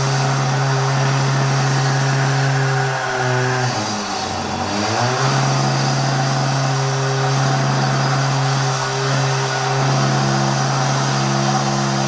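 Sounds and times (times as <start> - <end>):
construction drilling machine running: 0.0 - 12.0.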